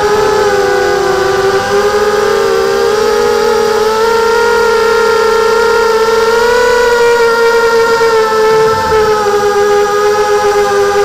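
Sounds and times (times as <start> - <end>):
quadcopter motors whining: 0.0 - 11.0.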